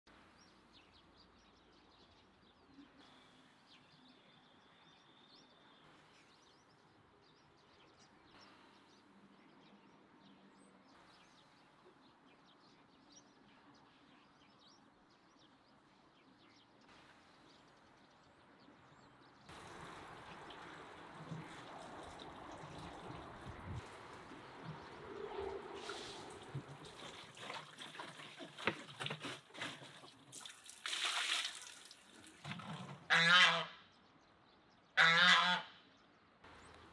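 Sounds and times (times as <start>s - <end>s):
water running from tap: 30.2s - 32.6s.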